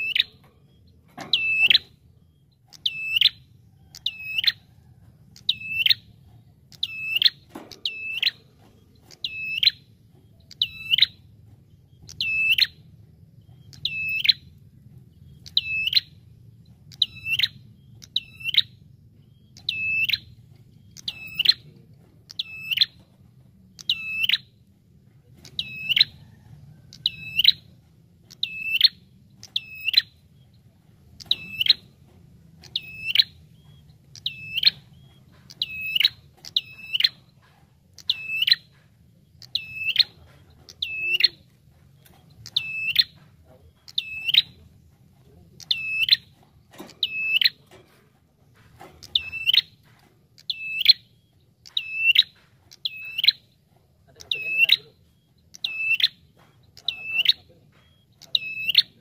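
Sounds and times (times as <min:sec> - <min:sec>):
bird calling with sharp note: 0:00.0 - 0:00.4, 0:01.3 - 0:04.6, 0:05.4 - 0:06.1, 0:06.7 - 0:08.5, 0:09.1 - 0:11.3, 0:12.0 - 0:12.8, 0:13.6 - 0:14.5, 0:15.4 - 0:16.2, 0:16.9 - 0:21.7, 0:23.8 - 0:24.5, 0:28.3 - 0:30.2, 0:31.2 - 0:32.0, 0:32.6 - 0:37.3, 0:38.0 - 0:38.8, 0:39.4 - 0:41.4, 0:42.4 - 0:43.2, 0:43.8 - 0:44.6, 0:45.6 - 0:47.6, 0:49.0 - 0:53.5, 0:54.1 - 0:59.0.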